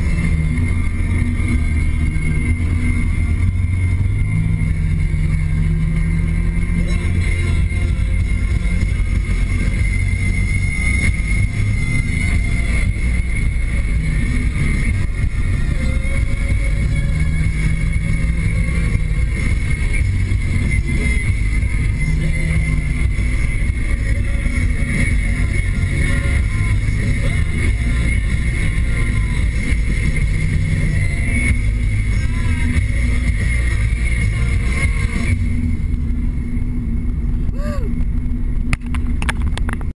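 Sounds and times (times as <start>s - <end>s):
car interior road rumble: 0.0s - 39.9s
high whine: 0.0s - 39.9s.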